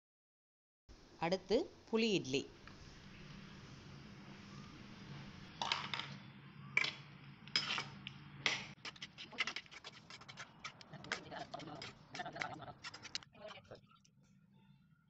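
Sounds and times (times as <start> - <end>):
metal spatula scraping a pan: 7.5 - 8.0, 8.7 - 13.2.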